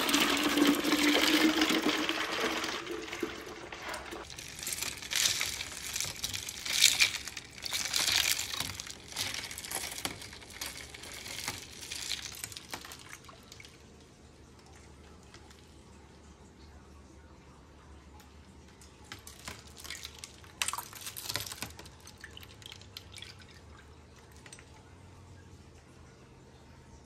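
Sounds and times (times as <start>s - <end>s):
lemonade pouring over ice: 0.0s - 13.8s, 19.1s - 23.4s
ice and fizz crackling: 0.0s - 14.0s, 19.0s - 23.6s.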